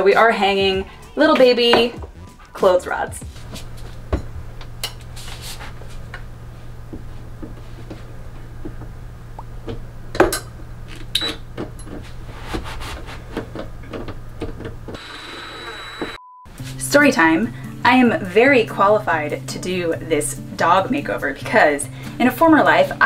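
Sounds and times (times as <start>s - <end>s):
steady low hum: 0.6s - 15.0s.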